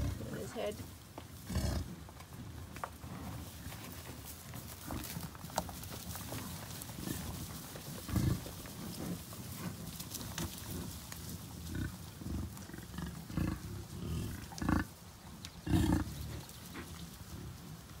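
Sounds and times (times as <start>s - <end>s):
bison grunting: 0.0s - 0.7s, 1.4s - 2.0s, 6.9s - 9.8s, 10.4s - 15.0s, 15.6s - 17.5s.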